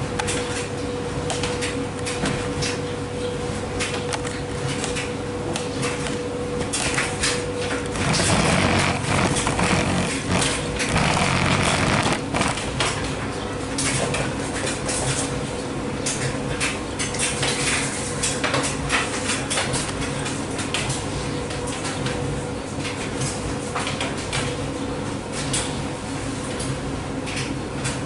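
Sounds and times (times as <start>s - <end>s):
washer and dryer motor hum: 0.0s - 28.0s
drums tumbling rumble: 7.9s - 12.8s.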